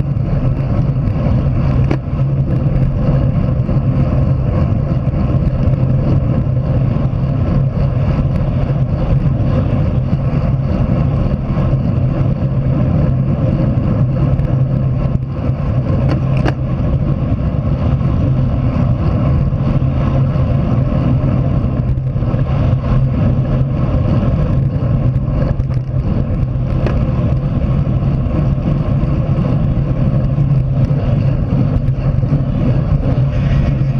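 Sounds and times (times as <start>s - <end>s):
road noise: 0.0s - 33.9s
wind rumble on microphone: 0.0s - 33.9s.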